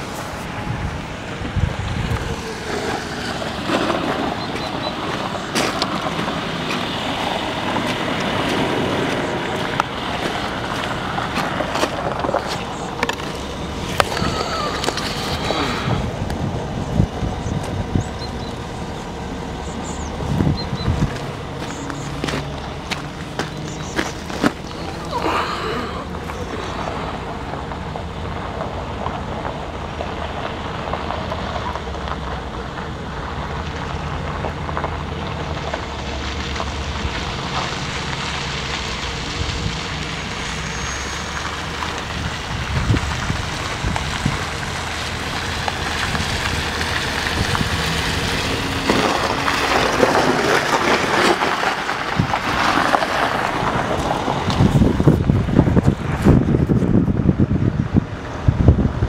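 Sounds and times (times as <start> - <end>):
wind buffeting microphone: 0.0 - 29.6, 41.9 - 59.0.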